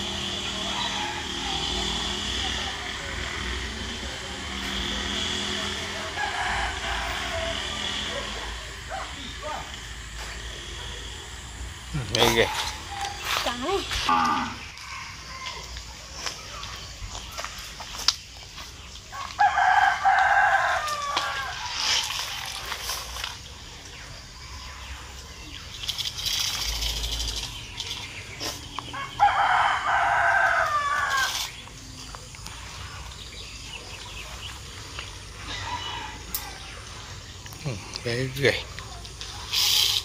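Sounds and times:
rooster crowing: 0.0s - 3.4s, 4.9s - 9.2s, 14.0s - 15.9s, 19.1s - 22.7s, 28.9s - 31.5s, 35.4s - 37.0s.

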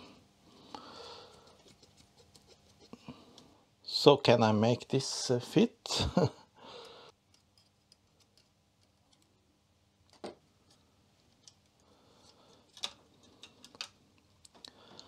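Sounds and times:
small clicks and rubbing: 1.4s - 2.9s, 7.3s - 9.4s.

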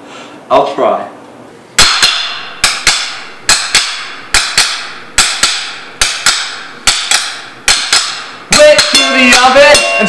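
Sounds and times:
utensils knocking on plates: 1.8s - 10.0s.

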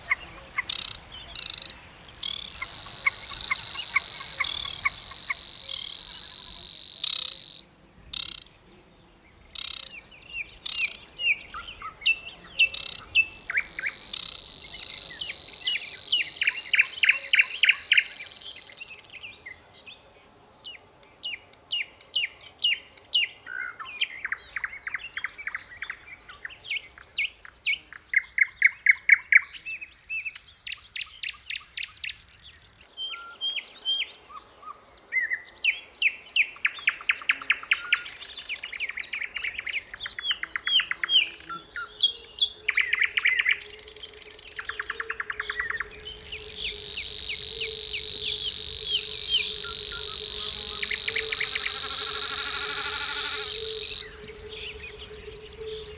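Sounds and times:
insect buzz: 0.0s - 19.0s, 39.4s - 55.9s
songbirds chirping and trilling: 0.0s - 55.9s.

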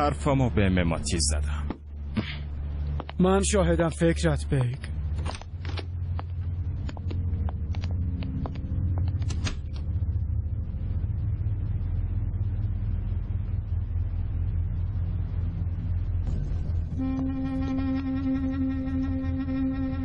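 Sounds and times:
low rumbling dramatic score: 0.0s - 20.0s.

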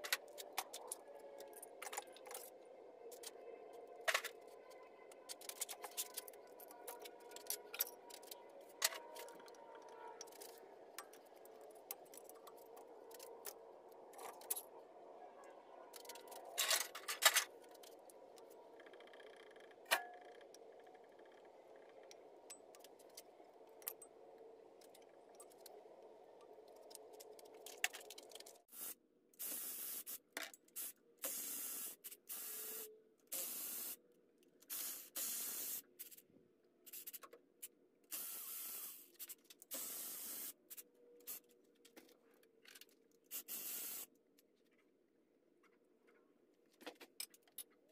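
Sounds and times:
short sharp hissing bursts: 28.7s - 30.2s, 34.7s - 35.8s, 38.1s - 39.0s, 43.3s - 44.1s.

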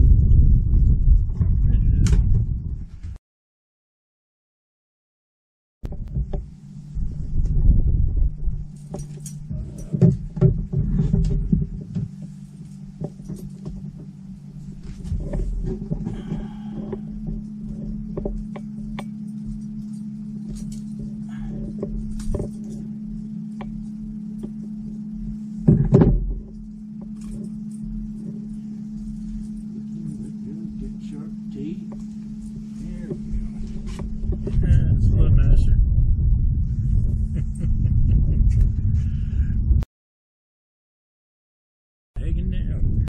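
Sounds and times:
small motor humming: 6.1s - 34.8s.

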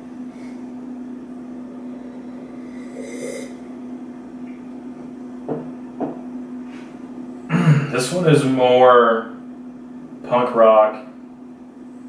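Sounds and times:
low room hum: 0.0s - 12.0s
man sipping from a glass: 1.9s - 3.6s
glass knocking on table: 5.4s - 6.2s.

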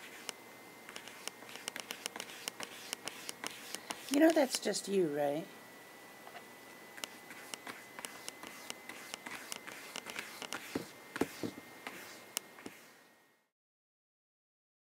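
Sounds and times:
faint high whine: 0.0s - 13.5s.

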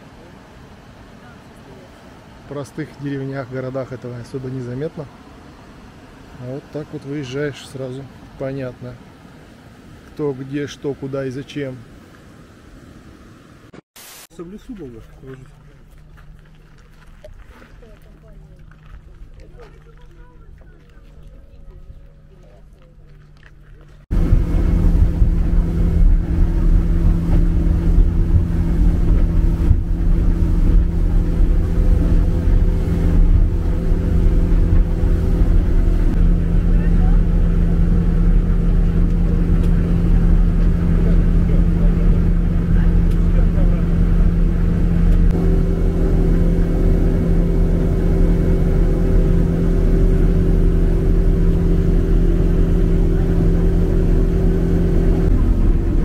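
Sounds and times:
road noise in car cabin: 0.0s - 13.8s, 14.4s - 56.0s
vehicle engine droning: 14.8s - 56.0s.

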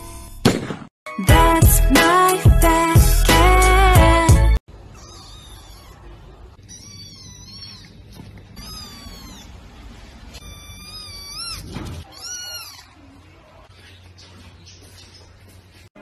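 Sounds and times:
kitten mewing: 4.9s - 9.6s, 10.4s - 13.0s.

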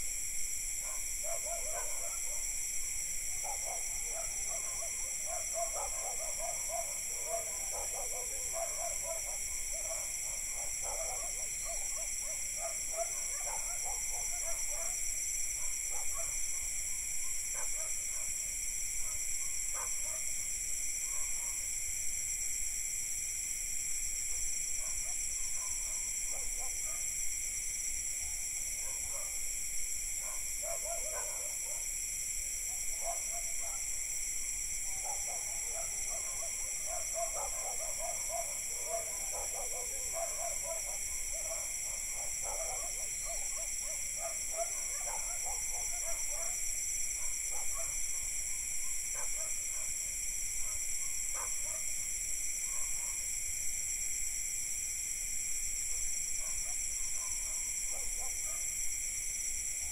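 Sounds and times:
crickets and cicadas chirping: 0.0s - 59.9s
distant dogs barking: 0.8s - 2.5s, 3.4s - 15.0s, 28.8s - 29.4s, 30.2s - 31.9s, 32.7s - 33.9s, 34.8s - 50.0s, 50.6s - 51.9s, 52.7s - 53.2s, 56.4s - 58.8s.

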